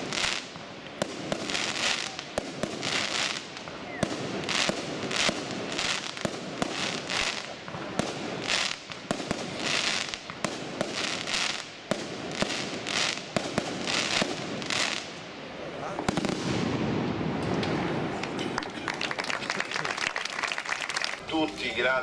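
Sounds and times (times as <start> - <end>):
firecracker bangs: 0.0 - 11.2, 16.0 - 18.0
firecrackers crackling: 0.0 - 22.0.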